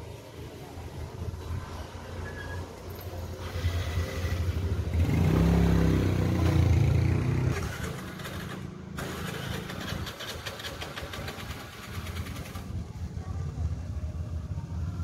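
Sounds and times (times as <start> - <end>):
engine running: 3.0 - 13.4.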